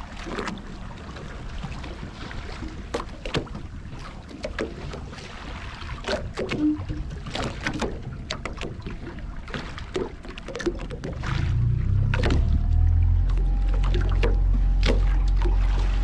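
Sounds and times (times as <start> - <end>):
water slapping against boat hull: 0.0 - 16.0
low steady rumble: 10.9 - 16.0.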